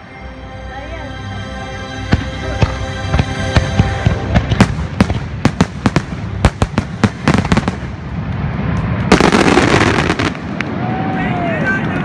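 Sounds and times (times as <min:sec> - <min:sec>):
fireworks bursting: 0:02.1 - 0:11.1.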